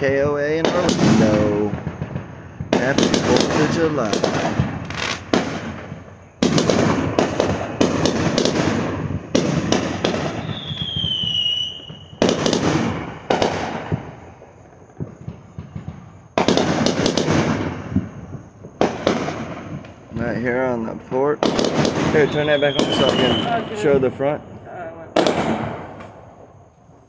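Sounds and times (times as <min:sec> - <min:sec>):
fireworks bangs: 0:00.0 - 0:27.0
fireworks crackling: 0:00.0 - 0:27.0
short falling whistle: 0:10.4 - 0:12.2.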